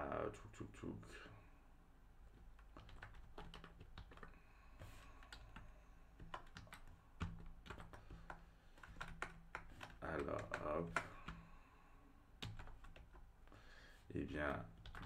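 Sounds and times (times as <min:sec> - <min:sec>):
faint keyboard typing: 0:02.2 - 0:11.6, 0:12.4 - 0:13.6, 0:14.4 - 0:15.0.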